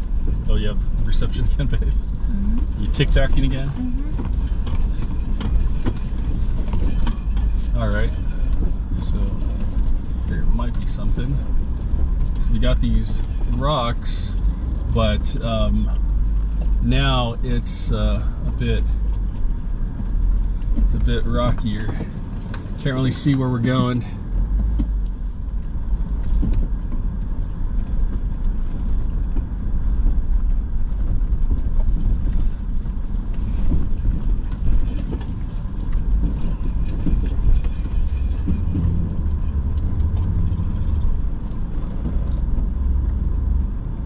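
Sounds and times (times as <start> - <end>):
engine and tyres rumbling: 0.0 - 44.0
knocks and rattles over rocks: 3.5 - 7.7, 26.0 - 43.0.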